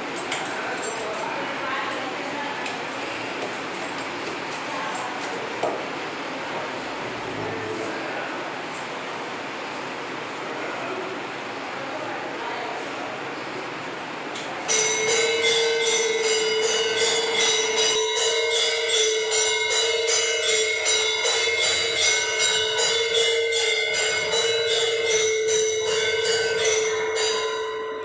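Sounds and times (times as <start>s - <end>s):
temple bell ringing rapidly: 14.6s - 28.0s.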